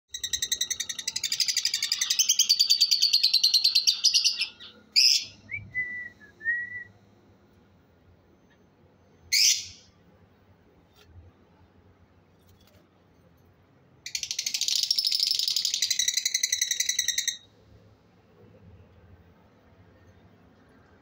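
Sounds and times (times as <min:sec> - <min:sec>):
lovebird chattering: 0:00.1 - 0:05.3, 0:14.1 - 0:17.4.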